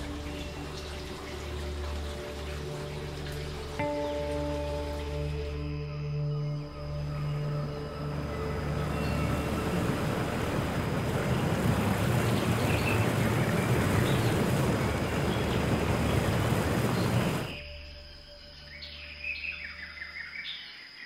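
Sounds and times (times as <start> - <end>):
steady rushing noise: 8.1 - 17.6.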